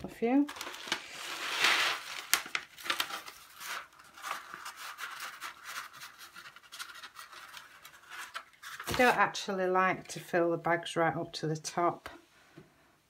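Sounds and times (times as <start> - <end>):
paper rustling and crinkling: 0.4 - 9.2.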